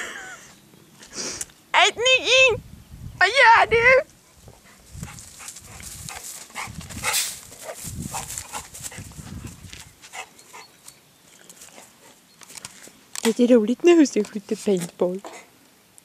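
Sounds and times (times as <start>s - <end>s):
rustling: 4.0s - 15.7s
dog panting and snuffling: 4.2s - 10.8s, 11.6s - 12.2s, 15.2s - 15.5s.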